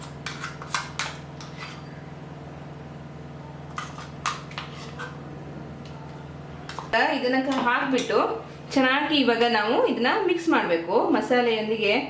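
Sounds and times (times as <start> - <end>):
metal spoon scraping a steel cup: 0.0 - 2.0, 3.7 - 5.2
steady low hum: 0.0 - 12.0.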